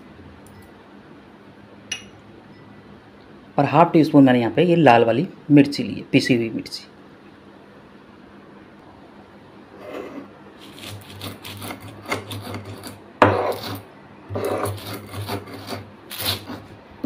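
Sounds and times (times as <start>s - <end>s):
grinding stone rasping: 9.8s - 16.8s.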